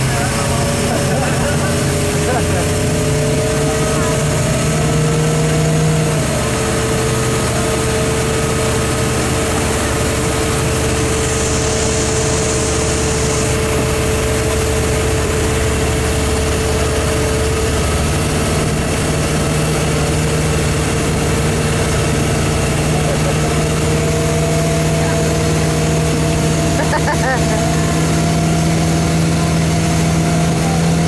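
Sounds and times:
motorboat engine droning: 0.0 - 31.0
rush of wind and water: 0.0 - 31.0.

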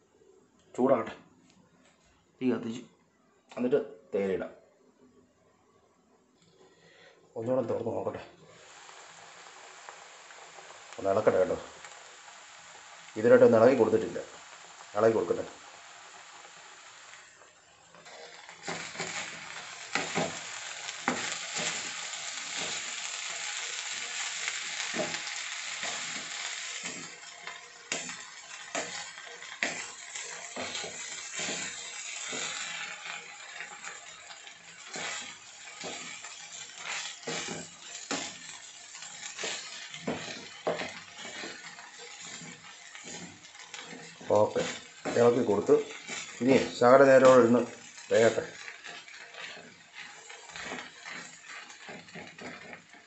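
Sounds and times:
food sizzling: 6.8 - 53.0
spatula scraping a wok: 18.0 - 53.0.

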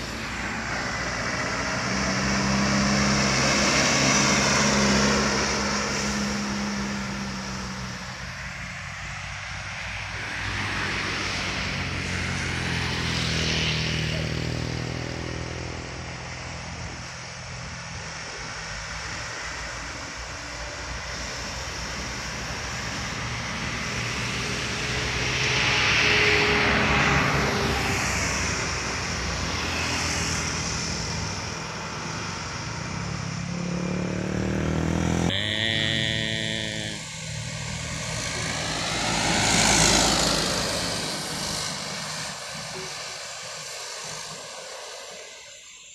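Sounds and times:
diesel trucks passing: 0.0 - 45.9
truck horn: 35.3 - 37.2.

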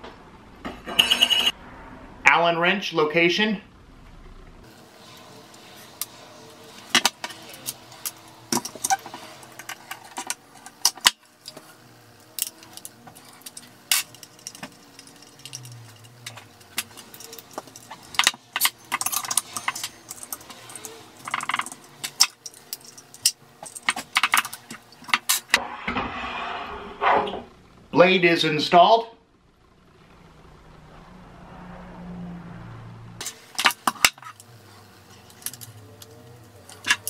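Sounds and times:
metal tools clinking on wooden bench: 12.4 - 25.4, 33.2 - 36.1.

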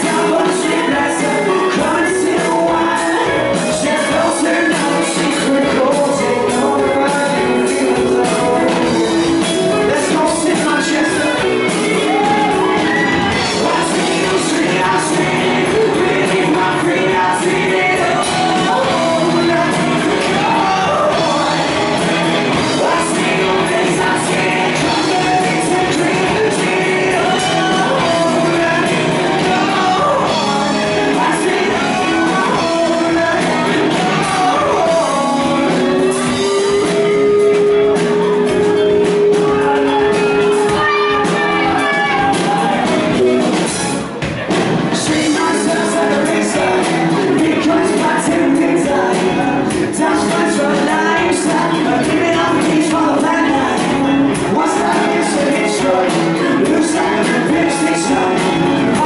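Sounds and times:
man singing into microphone: 0.0 - 43.4, 45.0 - 59.0
rock band playing: 0.0 - 59.0.

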